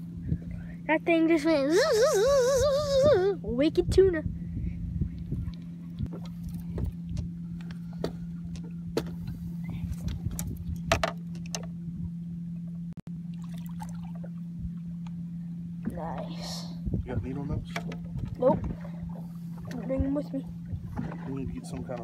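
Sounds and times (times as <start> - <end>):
low mechanical hum: 0.0 - 22.0
wind rumbling on microphone: 1.9 - 11.1, 16.6 - 22.0
knocks and clicks from rod and hull: 8.0 - 9.4, 10.0 - 11.8, 17.2 - 19.0, 20.7 - 22.0.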